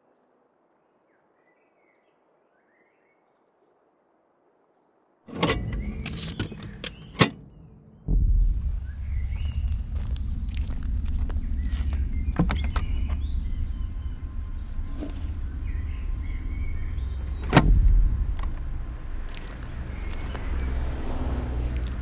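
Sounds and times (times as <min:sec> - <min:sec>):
loud thump: 0:05.3 - 0:19.4
low rumble: 0:05.6 - 0:22.0.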